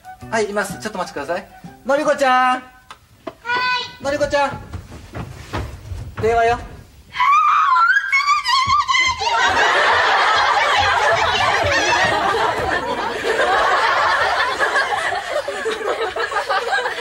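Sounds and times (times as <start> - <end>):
audience laughing: 9.2 - 17.0.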